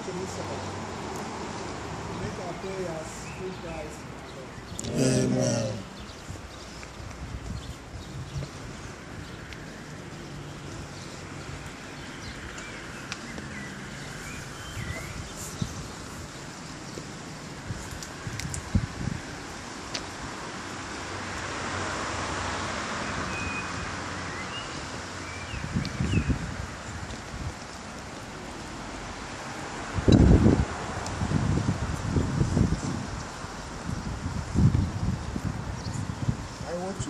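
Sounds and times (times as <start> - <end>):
wind on microphone: 5.8 - 9.4, 14.4 - 16.4, 17.5 - 20.4, 25.5 - 27.8, 29.9 - 37.0
faint clicks and chirps: 11.6 - 13.6.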